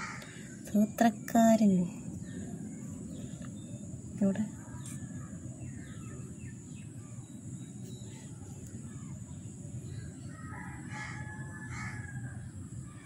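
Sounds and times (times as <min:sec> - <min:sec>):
loud bird call: 0:00.0 - 0:00.5
steady low rumble: 0:00.0 - 0:11.0
faint bird chirps: 0:00.0 - 0:13.0.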